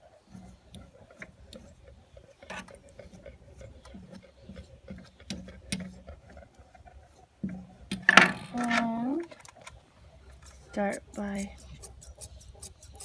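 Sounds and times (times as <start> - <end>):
metal comb through dog hair: 10.4 - 13.0.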